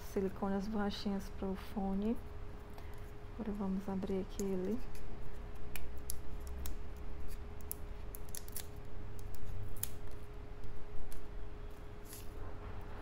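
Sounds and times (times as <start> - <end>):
faint steady hum: 0.0 - 13.0
fingernails peeling plastic film: 4.4 - 11.3.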